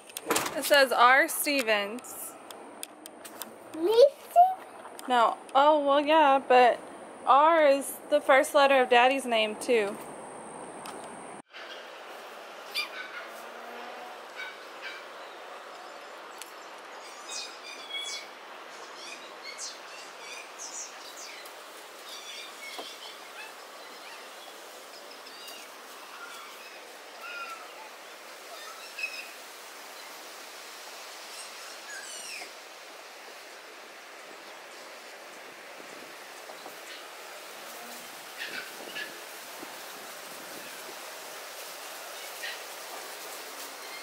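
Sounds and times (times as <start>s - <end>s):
outdoor ambience hiss: 0.0s - 44.0s
birds chirping: 14.3s - 30.2s.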